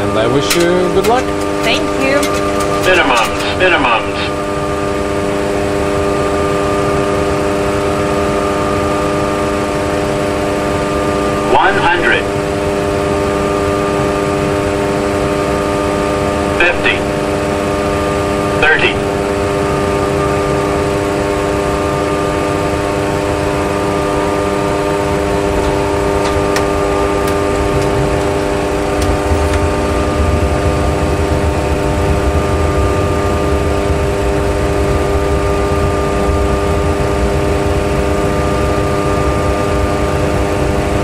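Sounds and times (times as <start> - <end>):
jet engine whine: 0.0 - 41.0
low rumble: 16.4 - 40.7.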